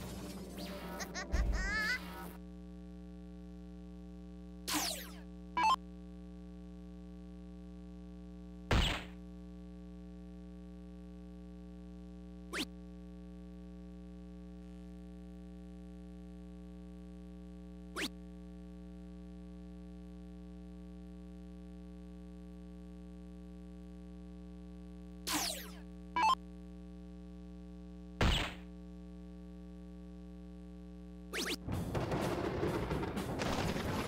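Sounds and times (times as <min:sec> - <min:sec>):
electronic game jingle and effects: 0:00.0 - 0:02.4
electronic dart-hit sound: 0:04.7 - 0:05.8, 0:08.7 - 0:09.2, 0:25.3 - 0:26.4, 0:28.2 - 0:28.7, 0:31.3 - 0:31.7.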